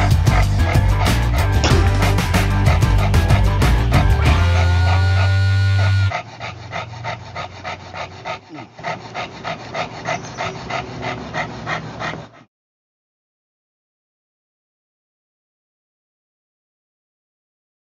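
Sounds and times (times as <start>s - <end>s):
dog panting fast: 0.0s - 12.5s.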